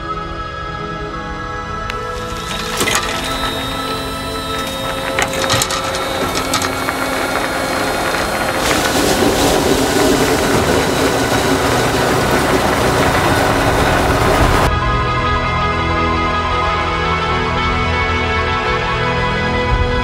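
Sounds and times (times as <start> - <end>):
ice resurfacer grinding ice: 1.9 - 14.7.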